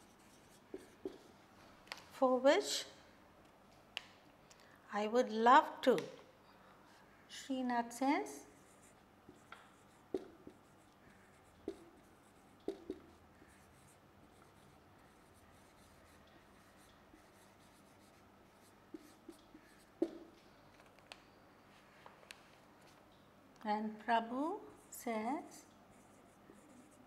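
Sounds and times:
marker pen writing on whiteboard: 0:00.0 - 0:01.3, 0:08.5 - 0:20.4, 0:24.8 - 0:27.0.

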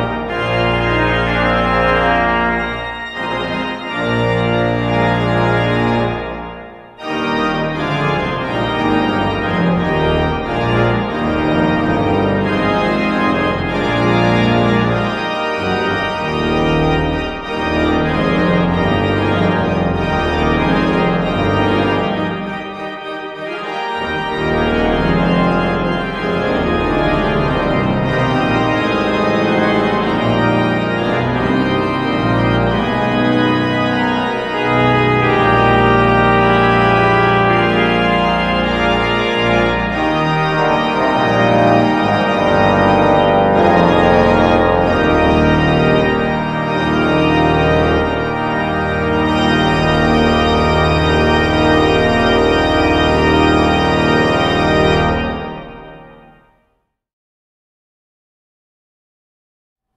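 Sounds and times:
pipe organ playing chords: 0:00.0 - 0:56.5.

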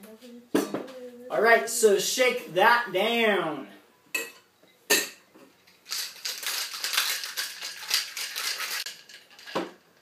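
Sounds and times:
ice rattling in cocktail shaker: 0:05.8 - 0:09.8.

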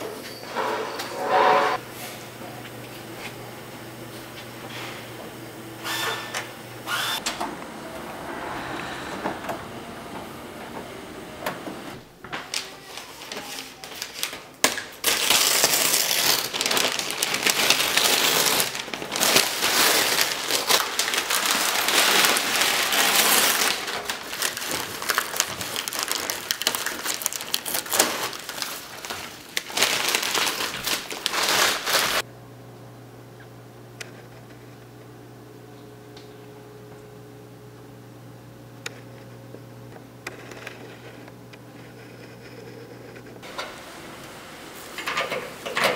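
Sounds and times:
newspaper crumpling and rustling: 0:12.4 - 0:32.2.

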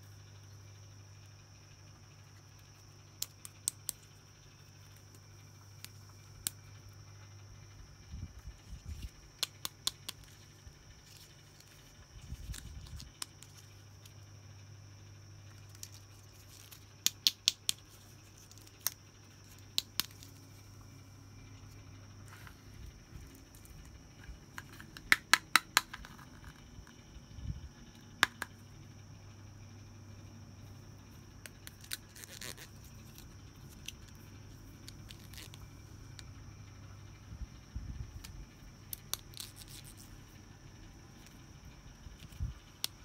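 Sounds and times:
faint low hum: 0:00.0 - 0:43.0.

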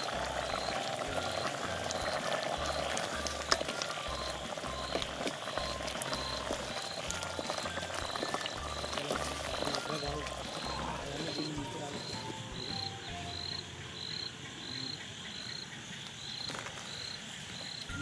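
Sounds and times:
curry bubbling in a pot: 0:00.0 - 0:13.6.

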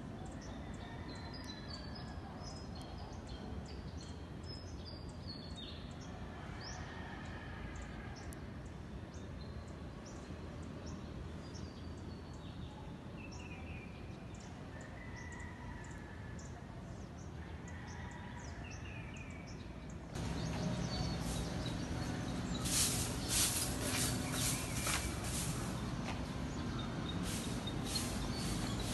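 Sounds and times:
street noise: 0:00.0 - 0:28.9
distant urban rumble: 0:18.9 - 0:28.9
small birds chirping: 0:19.0 - 0:28.9.

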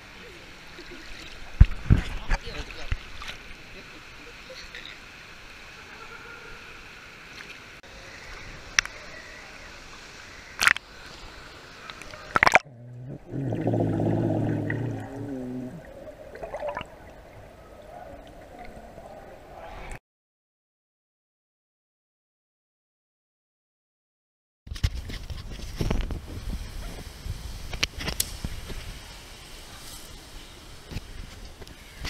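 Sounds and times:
pool water lapping and splashing: 0:00.1 - 0:19.7
muffled underwater burble: 0:12.4 - 0:17.0.

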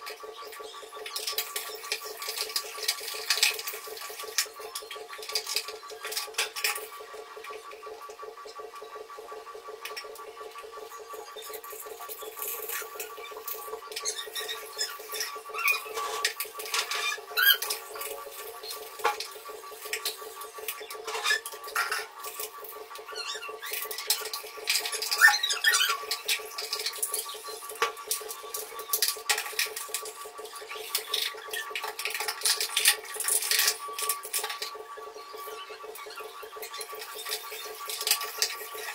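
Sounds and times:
steady hum: 0:00.0 - 0:38.9
toothbrush scrubbing plastic: 0:11.1 - 0:38.9.

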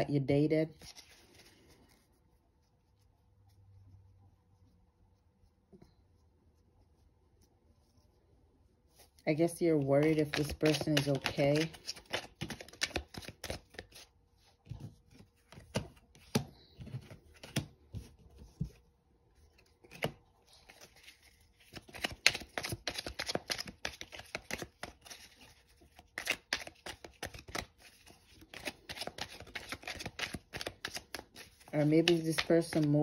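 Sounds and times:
cards being shuffled by hand: 0:00.7 - 0:02.1, 0:09.0 - 0:18.8, 0:19.4 - 0:33.0.

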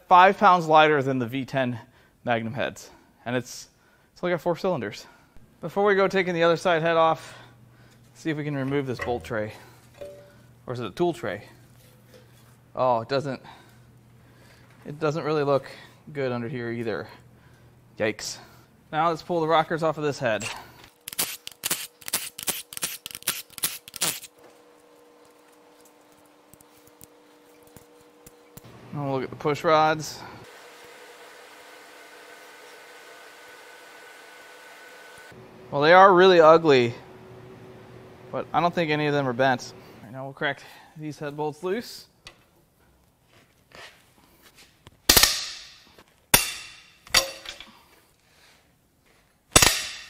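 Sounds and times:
faint steady hum: 0:05.0 - 0:21.1.

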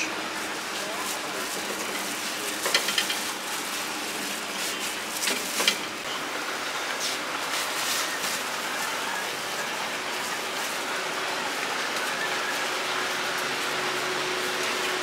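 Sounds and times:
food sizzling on hot surface: 0:00.3 - 0:06.0
metal utensils clicking: 0:01.7 - 0:03.3.

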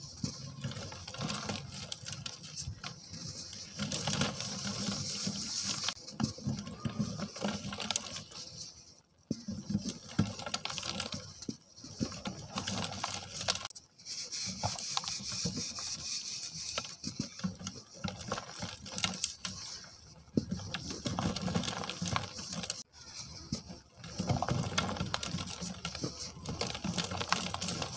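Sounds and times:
dry cement crumbling onto plastic: 0:09.3 - 0:13.7, 0:16.4 - 0:27.9.

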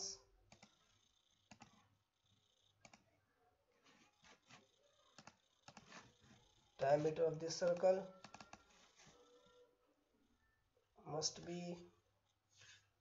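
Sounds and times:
computer mouse clicks: 0:00.5 - 0:00.8, 0:01.4 - 0:01.9, 0:02.8 - 0:03.0, 0:04.5 - 0:06.2, 0:07.6 - 0:08.8.

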